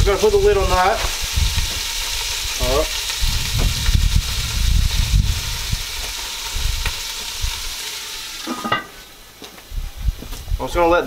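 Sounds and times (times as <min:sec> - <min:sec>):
low rumbling: 0:00.0 - 0:07.8
fish frying in oil: 0:00.0 - 0:08.7.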